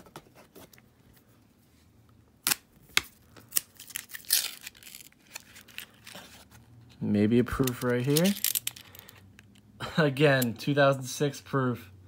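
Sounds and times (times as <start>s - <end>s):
paper wrapper crinkling and tearing: 3.2s - 6.6s
coins clicking: 7.6s - 9.2s.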